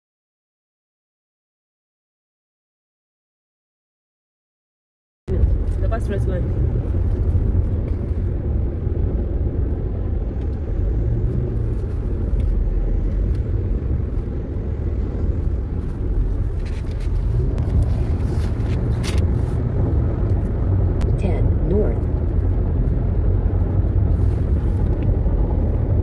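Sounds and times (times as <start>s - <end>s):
car road and engine rumble: 5.3s - 26.0s.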